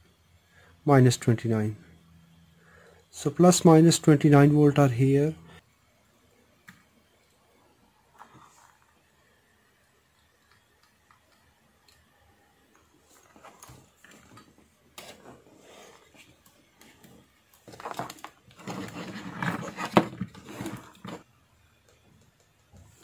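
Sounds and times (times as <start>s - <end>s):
rustling and rubbing on workbench: 17.7s - 21.2s.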